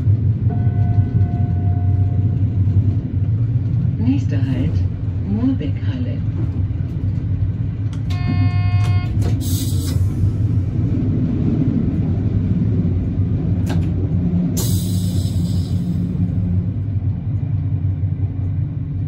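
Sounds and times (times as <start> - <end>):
railcar rumbling along track: 0.0 - 19.0
short pitched tone: 8.1 - 9.1.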